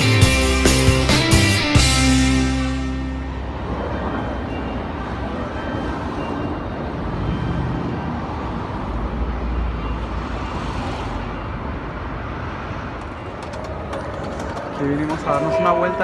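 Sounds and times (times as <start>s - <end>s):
traffic rumble: 1.8s - 16.0s.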